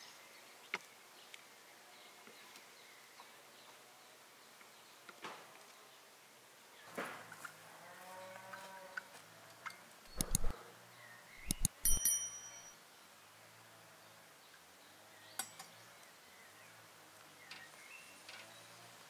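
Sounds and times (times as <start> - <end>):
birds chirping faintly: 10.1 - 13.3
china teaware clinking: 11.4 - 12.7.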